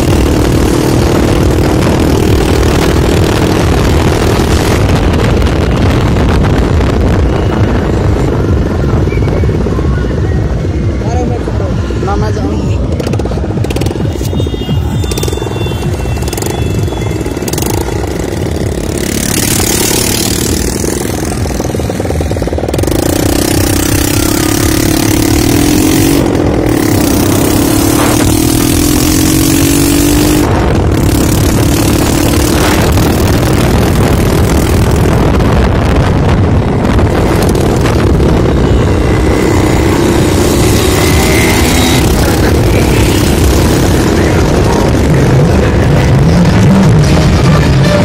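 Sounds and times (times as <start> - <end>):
motorcycle engine running: 0.0 - 48.0
wind rumble on microphone: 0.0 - 48.0.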